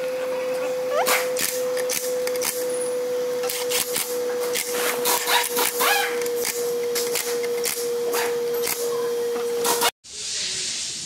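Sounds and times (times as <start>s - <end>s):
impact wrench hammering: 3.4s - 8.9s.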